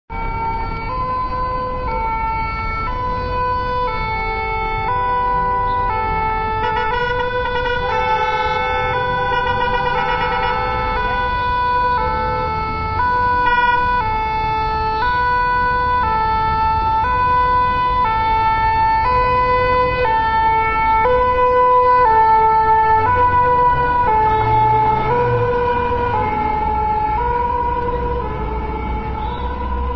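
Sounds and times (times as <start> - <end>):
road traffic: 0.1 - 29.9
two-tone siren: 0.1 - 29.9.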